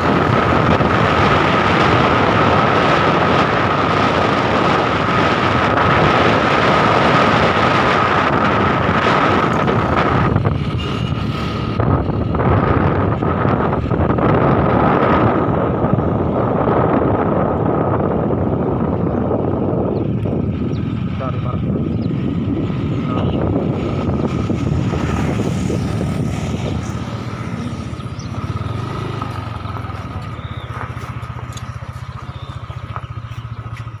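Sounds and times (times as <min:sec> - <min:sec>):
motorcycle engine running: 0:00.0 - 0:34.0
wind rushing over microphone: 0:00.0 - 0:34.0
motorcycle engine idling: 0:27.3 - 0:34.0.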